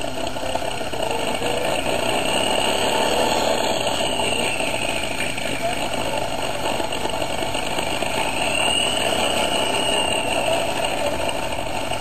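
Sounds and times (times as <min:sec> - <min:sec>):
engine rattling drone: 0:00.0 - 0:12.0
high whine: 0:00.0 - 0:12.0.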